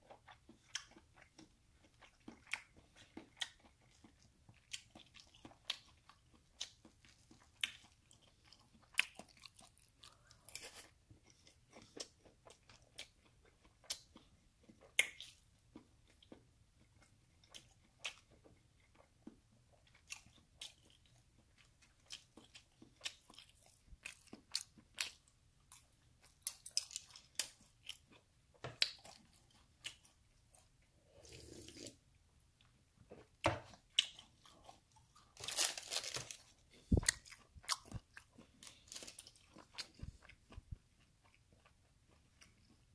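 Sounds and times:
crunchy chewing and biting: 33.7s - 42.9s.

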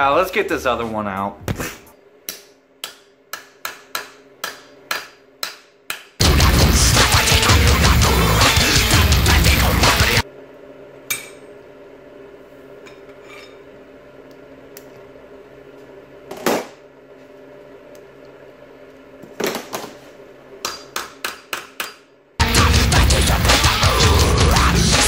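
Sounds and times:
music: 6.2s - 10.2s, 22.4s - 25.0s.

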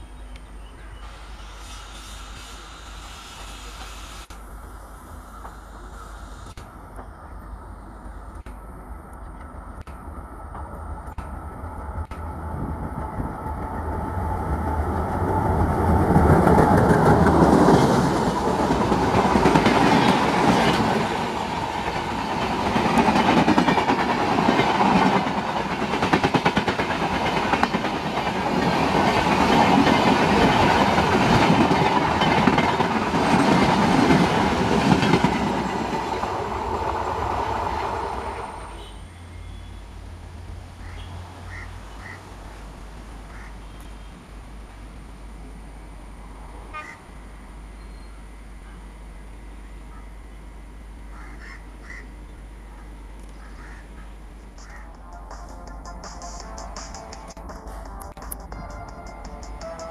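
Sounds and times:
diesel locomotive passing: 0.0s - 59.9s
train wheels clattering over rails: 13.0s - 38.6s.

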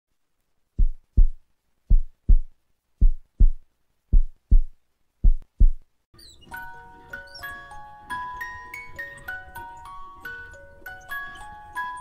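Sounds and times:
heartbeat thumps: 0.8s - 5.8s
soft music with chiming notes: 6.4s - 12.0s.

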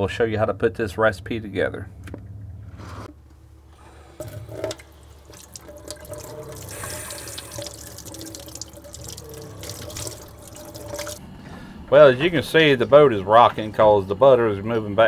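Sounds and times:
tap water running into sink: 4.2s - 11.2s.

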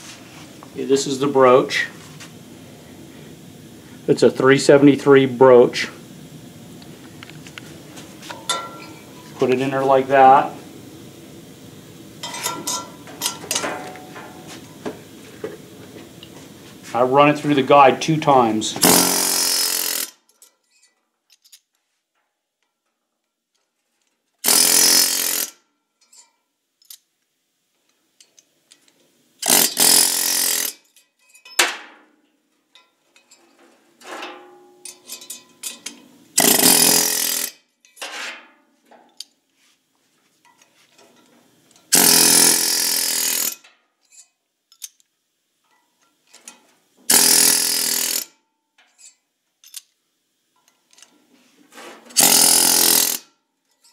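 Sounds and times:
pneumatic air hammer firing: 18.8s - 20.2s, 24.4s - 25.6s, 29.4s - 30.8s, 36.4s - 37.6s, 41.9s - 43.6s, 47.1s - 48.4s, 52.1s - 53.3s
metal clinks and clatter: 34.8s - 37.0s, 53.7s - 53.9s.

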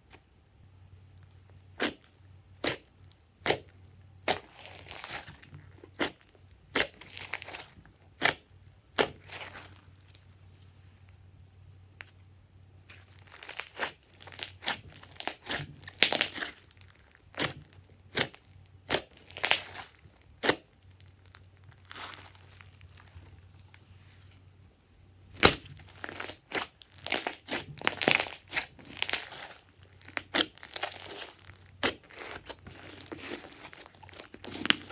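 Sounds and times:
wet slime squelches: 1.2s - 11.2s, 12.8s - 24.4s, 25.3s - 34.9s
slime air pockets popping: 25.3s - 34.9s.

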